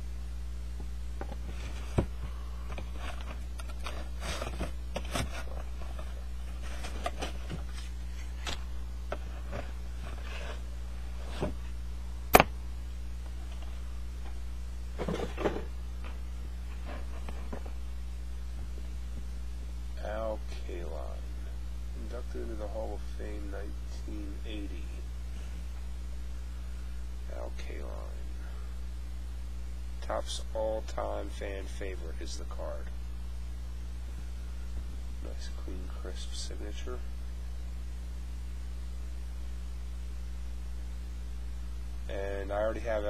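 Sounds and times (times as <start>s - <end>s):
low electrical hum: 0.0s - 43.0s
box and plastic case handled: 1.2s - 8.6s.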